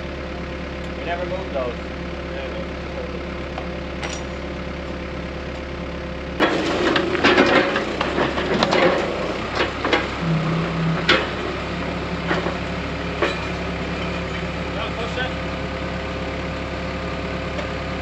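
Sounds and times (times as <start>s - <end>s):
engine idling: 0.0s - 18.0s
knocks and clatter: 6.4s - 14.5s.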